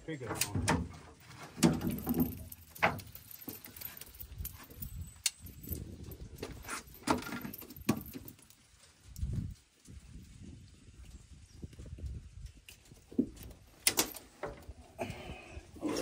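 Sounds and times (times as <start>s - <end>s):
sharp knocks and clatter: 0.3s - 3.8s.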